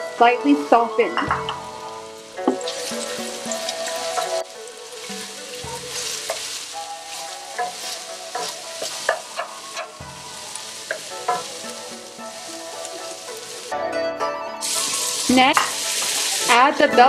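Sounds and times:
soft background music: 0.0s - 17.0s
onions sizzling in hot oil: 0.2s - 13.8s, 14.6s - 17.0s.

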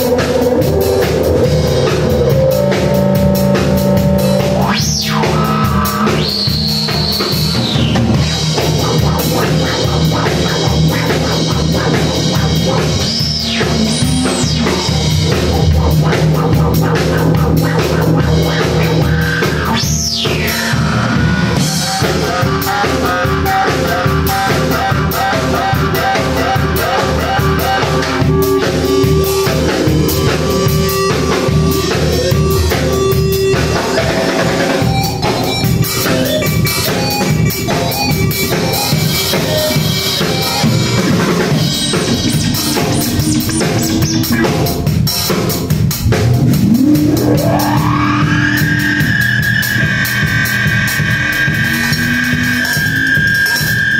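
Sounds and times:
synthesizer drone swooping in pitch: 0.0s - 25.0s, 40.6s - 45.0s, 46.0s - 53.9s
drum kit rock beat: 0.0s - 53.9s.

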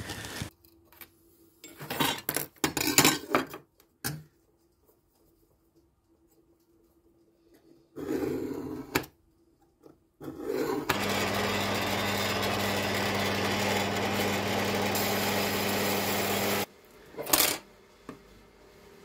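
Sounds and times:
bandsaw cutting steel: 10.9s - 16.7s.

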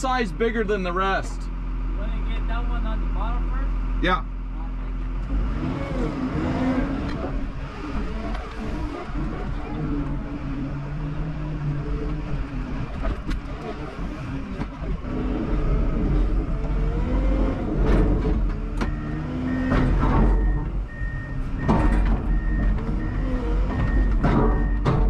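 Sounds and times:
diesel engine revving: 0.0s - 25.0s
backup alarm beeping: 18.8s - 25.0s
knocks and rattles: 19.6s - 20.8s, 21.6s - 25.0s.

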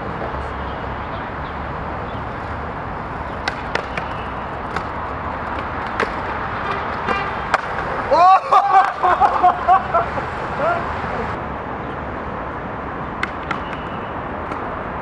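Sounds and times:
skateboard wheels rolling on stone: 2.4s - 9.5s
skateboard clacks: 3.4s - 8.0s, 13.2s - 14.8s.

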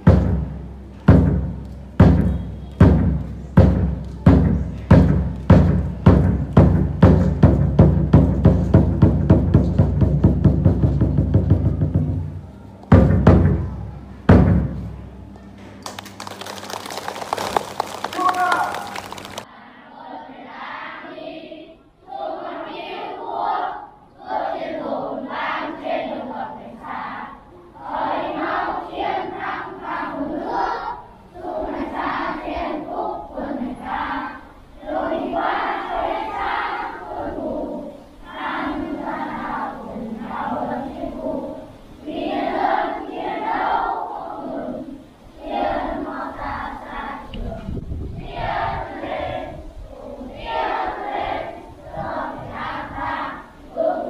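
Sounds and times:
drum roll: 0.0s - 15.2s, 15.8s - 19.4s
heavy drum strikes: 0.0s - 15.2s
crowd murmur: 10.8s - 19.7s
children singing in unison: 17.6s - 54.0s.

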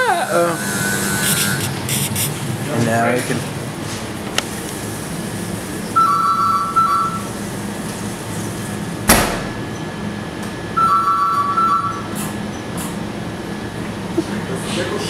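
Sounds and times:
steady low hum: 0.0s - 10.8s
two-tone electronic beeps: 6.0s - 7.3s, 10.8s - 12.1s
oven door clanking shut: 9.1s - 9.8s.

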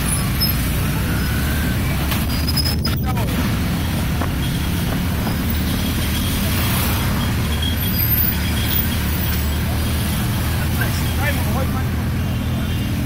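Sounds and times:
motorcycle engine running: 0.0s - 6.8s
road and traffic noise: 0.0s - 13.0s.

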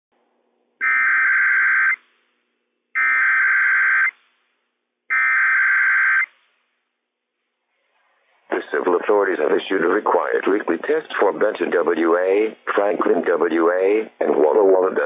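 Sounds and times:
two-tone digital data bursts: 0.8s - 2.0s, 3.0s - 4.1s, 5.1s - 6.3s.

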